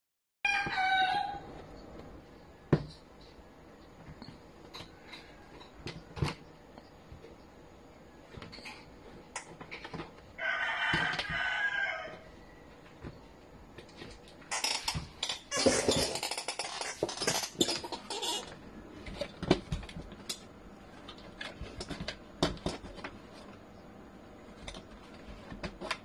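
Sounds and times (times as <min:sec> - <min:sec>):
rooster crowing: 0:00.4 - 0:01.7, 0:10.4 - 0:12.8.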